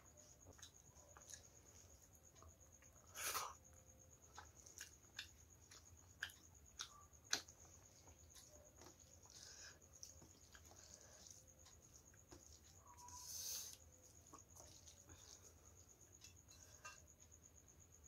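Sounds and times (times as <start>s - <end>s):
chewing with sharp clicks: 0.2s - 17.3s
fingers mixing food on steel plate: 5.0s - 17.5s.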